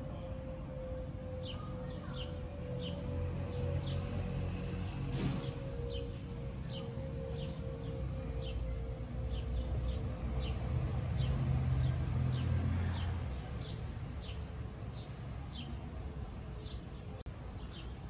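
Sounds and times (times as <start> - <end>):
small bird chirping: 5.3 - 15.8.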